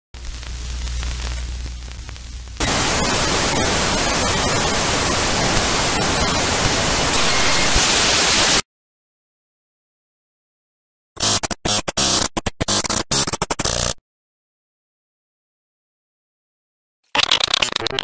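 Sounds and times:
low electrical hum: 0.2 - 2.6
television static hiss: 0.2 - 8.6.

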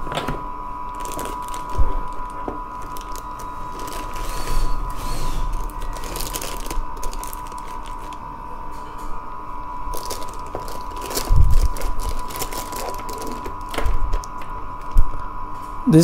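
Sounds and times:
plastic bag crinkling: 0.9 - 8.3, 9.8 - 15.2.

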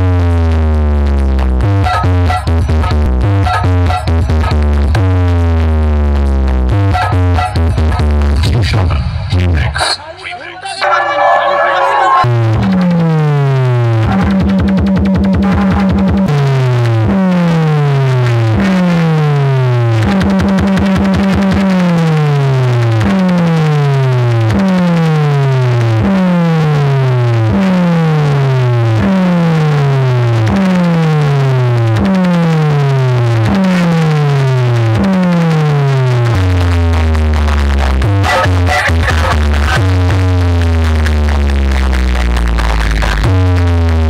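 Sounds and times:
synthesizer bass note sliding down: 10.8 - 44.0.

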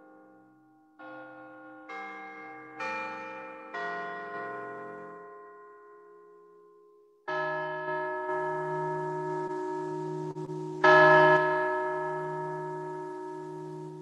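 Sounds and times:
amplified carillon bells: 7.3 - 14.0.

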